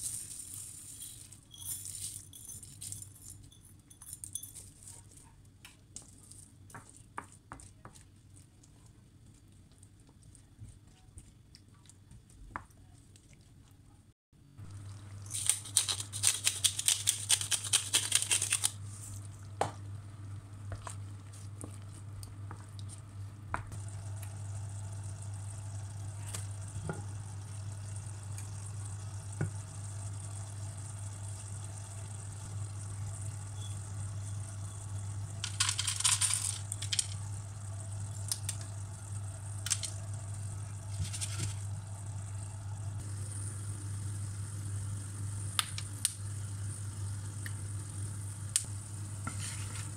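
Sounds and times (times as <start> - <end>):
seeds poured into frying pan: 0.0 - 2.2
pepper mill grinding: 0.0 - 4.7, 15.2 - 18.8, 35.3 - 37.3, 39.6 - 40.0, 40.8 - 41.7
steady low hum: 18.8 - 49.9.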